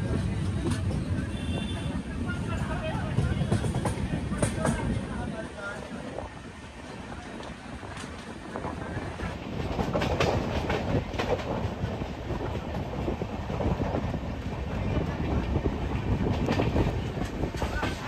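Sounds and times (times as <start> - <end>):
train coaches rumbling: 0.0 - 18.0
wheels clacking over rails: 3.0 - 5.3, 7.2 - 18.0.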